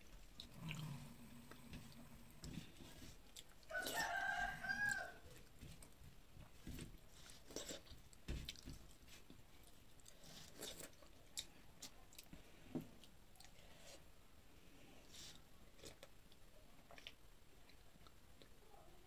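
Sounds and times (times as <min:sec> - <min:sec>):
quiet chewing: 0:00.0 - 0:19.0
rooster crowing: 0:03.7 - 0:05.4.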